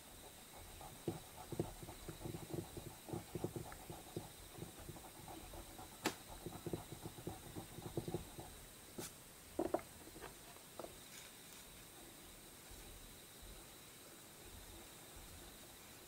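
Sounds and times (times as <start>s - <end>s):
drawing stick scratching paper: 0.6s - 9.1s.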